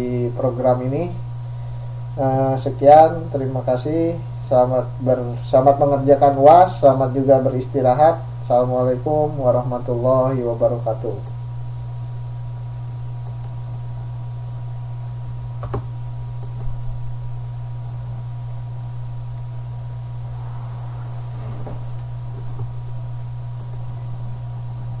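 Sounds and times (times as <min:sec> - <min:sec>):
low electrical hum: 0:00.0 - 0:25.0
single click: 0:23.6 - 0:23.8.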